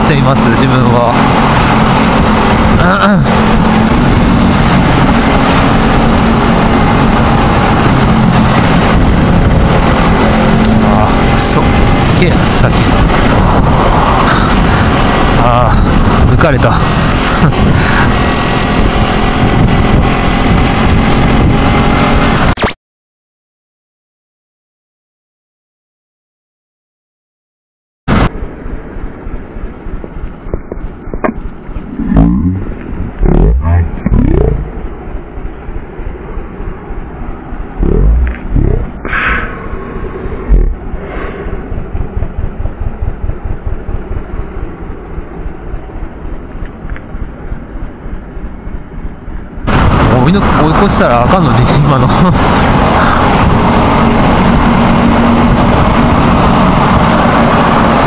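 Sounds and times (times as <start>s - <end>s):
wind noise on microphone: 0.0s - 22.8s, 28.1s - 58.0s
motorcycle engine running: 1.0s - 22.3s, 28.3s - 39.1s, 40.2s - 50.6s.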